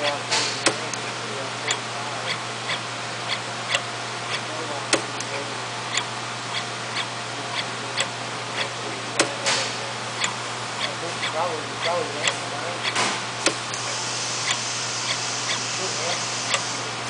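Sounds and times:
steady low hum: 0:00.0 - 0:17.0
machine tooling clicking: 0:10.2 - 0:16.7.

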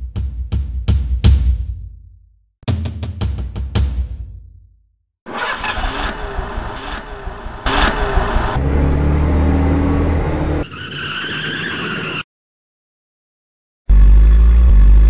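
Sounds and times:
road noise: 0:05.3 - 0:12.2
vehicle engine hum: 0:05.3 - 0:12.2, 0:13.9 - 0:15.0.

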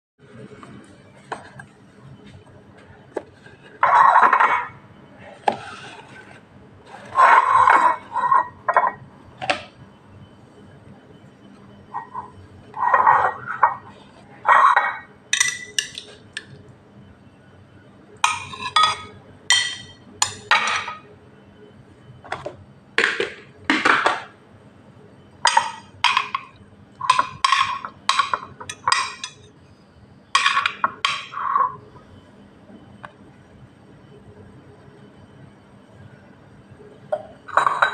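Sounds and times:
metal spoon scraping glass: 0:18.3 - 0:20.5.

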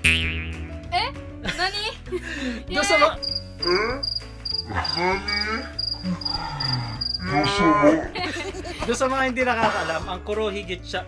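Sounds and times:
cricket chirping: 0:03.2 - 0:07.5.

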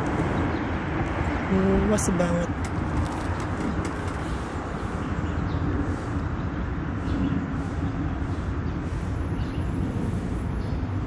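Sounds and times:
vehicle road rumble: 0:00.0 - 0:11.0.

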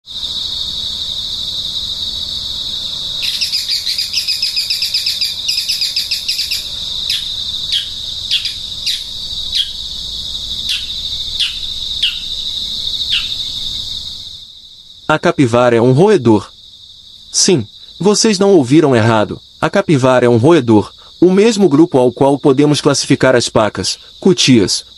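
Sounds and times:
high-pitched insect buzz: 0:00.0 - 0:15.1
bird trill: 0:03.2 - 0:10.0, 0:10.6 - 0:13.9.

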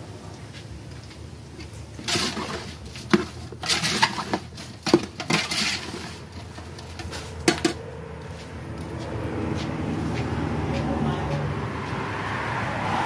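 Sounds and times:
metal ladle scraping a pot: 0:02.0 - 0:07.8.

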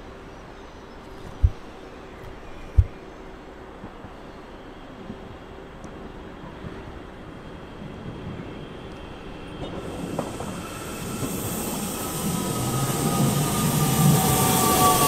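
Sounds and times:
train approaching: 0:03.0 - 0:15.0.

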